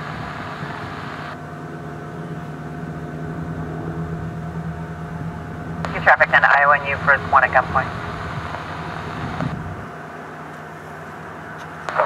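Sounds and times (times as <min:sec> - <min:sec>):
radio static hiss: 0:00.0 - 0:01.4, 0:05.8 - 0:09.7, 0:11.8 - 0:12.0
distant helicopter drone: 0:00.0 - 0:12.0.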